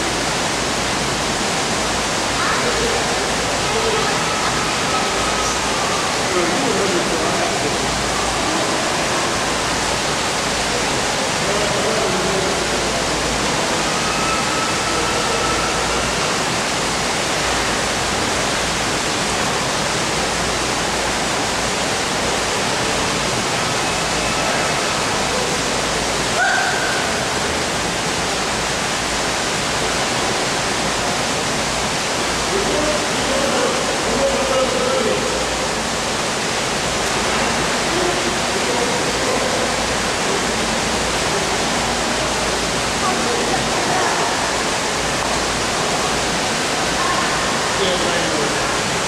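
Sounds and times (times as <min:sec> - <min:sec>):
brief high tone: 0:13.8 - 0:16.3.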